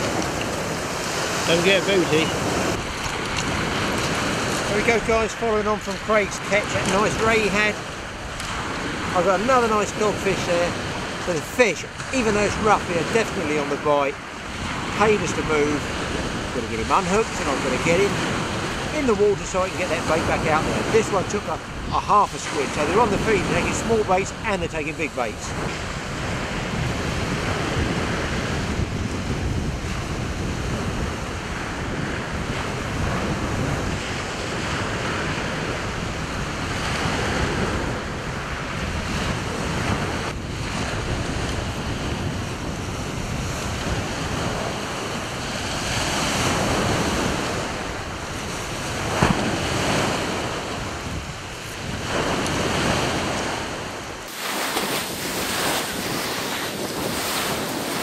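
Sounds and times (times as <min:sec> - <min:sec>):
wind buffeting microphone: 0:00.0 - 0:58.0
surf breaking on shingle: 0:54.3 - 0:58.0.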